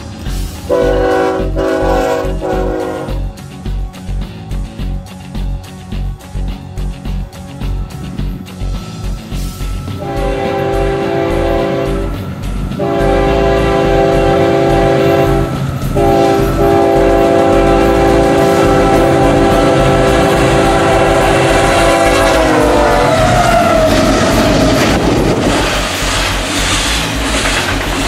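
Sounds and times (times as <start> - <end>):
rumble of passing locomotives: 0.0 - 28.0
locomotive air horn blasts: 0.7 - 3.2, 10.0 - 12.2, 12.8 - 25.1.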